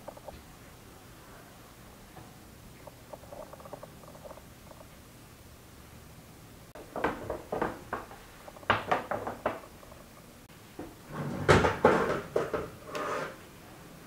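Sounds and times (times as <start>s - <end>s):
metal pan scraping on oven rack: 12.8s - 13.4s.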